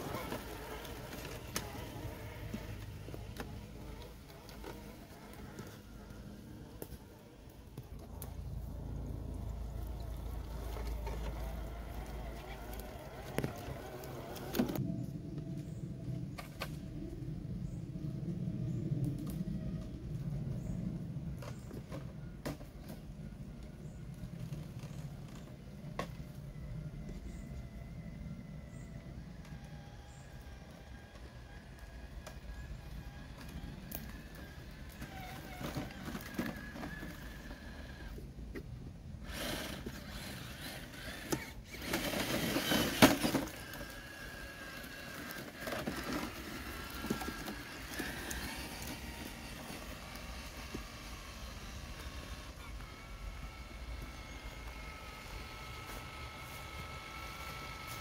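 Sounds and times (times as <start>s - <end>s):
toy car motor humming: 0.0s - 8.0s, 8.8s - 14.8s, 29.4s - 38.2s, 39.2s - 58.0s.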